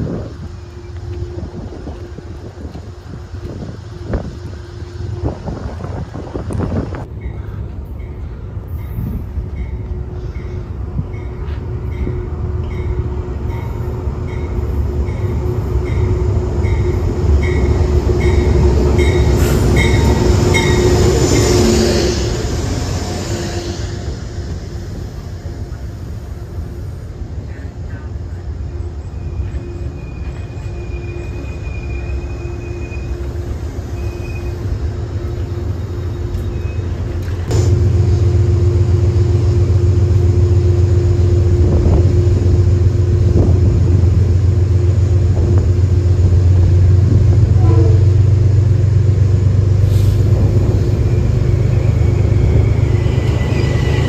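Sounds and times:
train standing humming: 0:00.0 - 0:54.0
wind rumble on microphone: 0:01.2 - 0:07.1, 0:41.5 - 0:44.4
electric train braking: 0:29.0 - 0:43.2, 0:49.8 - 0:54.0.

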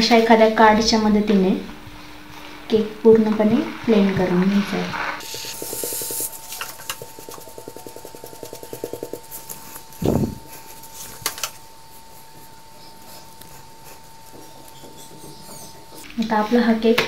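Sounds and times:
faint steady whine: 0:00.0 - 0:17.0
fast even rattle: 0:05.2 - 0:11.6.

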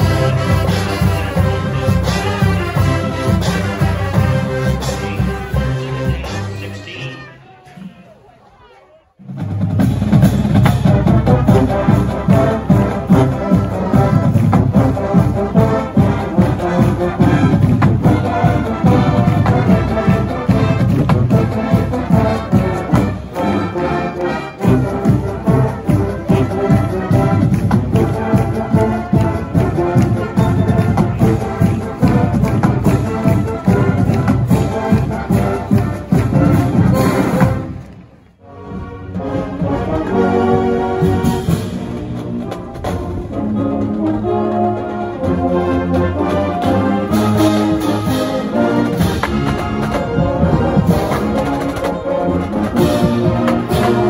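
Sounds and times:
loud brass section: 0:00.0 - 0:09.4, 0:10.7 - 0:37.8
marching band playing: 0:00.0 - 0:54.0.

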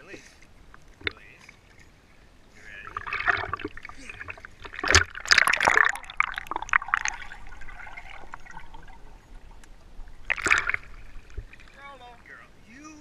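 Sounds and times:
underwater water noise: 0:00.0 - 0:13.0
water splashing and sloshing: 0:00.0 - 0:13.0.

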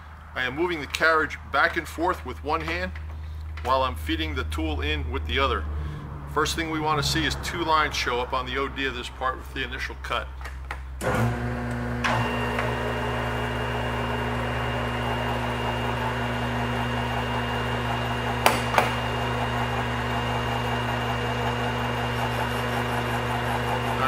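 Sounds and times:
lathe humming with gear whine: 0:11.0 - 0:24.0.

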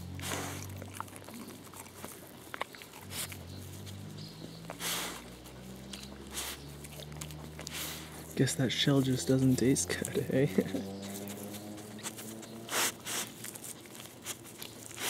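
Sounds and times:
dog sniffing: 0:00.0 - 0:15.0
small crunches and clicks: 0:00.2 - 0:15.0.

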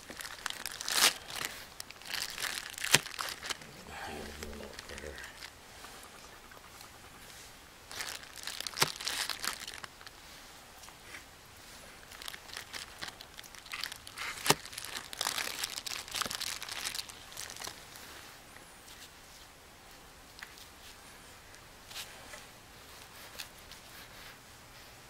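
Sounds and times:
butter wrapper crinkling: 0:00.0 - 0:05.5, 0:07.9 - 0:10.1, 0:12.0 - 0:18.0.

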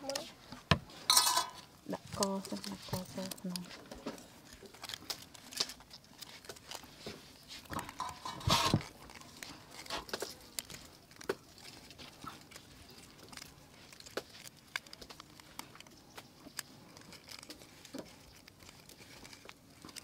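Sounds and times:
hands handling raw chicken: 0:00.1 - 0:20.0.

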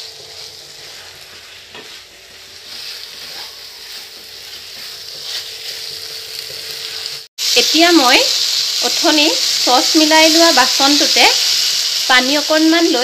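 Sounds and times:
wooden spatula scraping a pan: 0:00.0 - 0:06.0
sauce sizzling in a pan: 0:00.0 - 0:13.0.

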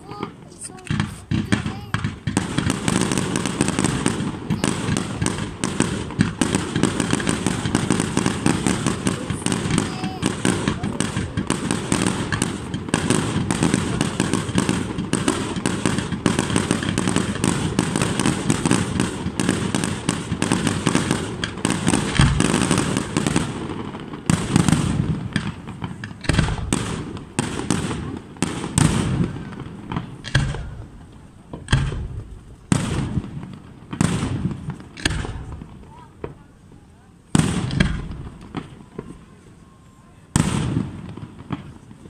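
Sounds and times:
fireworks bursting: 0:00.0 - 0:42.0.

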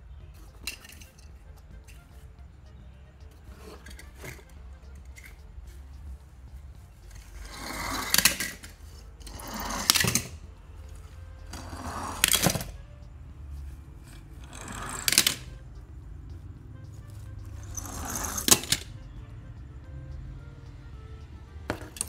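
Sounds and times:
toy cars clattering: 0:00.4 - 0:01.3, 0:07.1 - 0:10.4, 0:11.5 - 0:12.8, 0:14.1 - 0:15.5, 0:17.6 - 0:18.9
toy cars rolling down plastic board: 0:07.4 - 0:10.4, 0:11.5 - 0:12.8, 0:14.4 - 0:15.5, 0:17.6 - 0:18.9.

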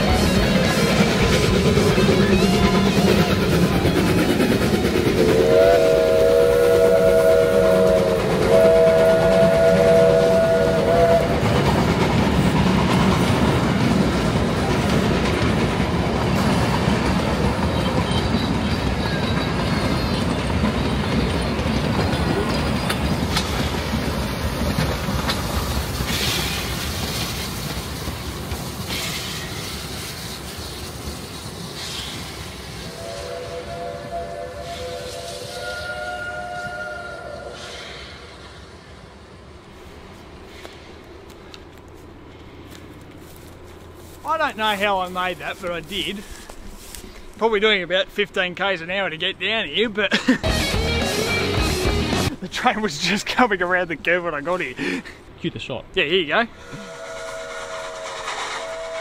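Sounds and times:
steam train running past: 0:00.0 - 0:59.0
steam whistle blasts: 0:05.2 - 0:11.4, 0:32.8 - 0:38.3, 0:56.6 - 0:59.0.

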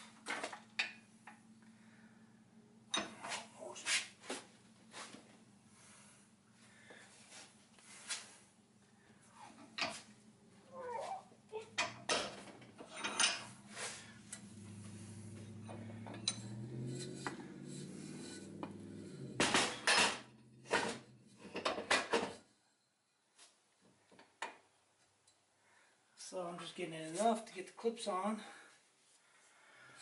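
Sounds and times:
low hum: 0:12.8 - 0:23.2
metal clanks and clicks: 0:15.6 - 0:17.5.

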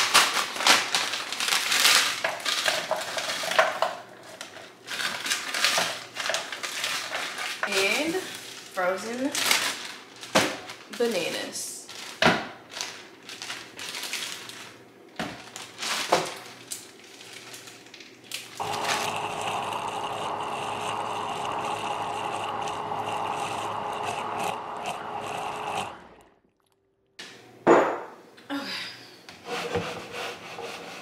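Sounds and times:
plastic bag rustling: 0:00.0 - 0:19.2
blender running: 0:18.6 - 0:26.4.

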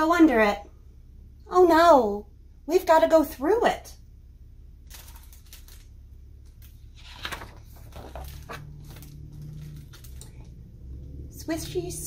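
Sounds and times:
low steady hum: 0:00.0 - 0:12.0
paper page rustling: 0:04.9 - 0:10.6.

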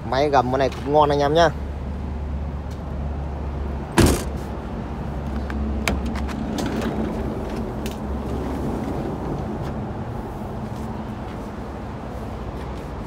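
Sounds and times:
loud thump: 0:03.9 - 0:04.4.

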